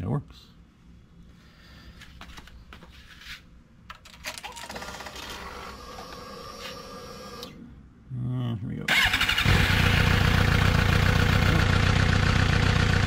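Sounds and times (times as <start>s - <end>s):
fuel pump whirring: 4.7s - 7.6s.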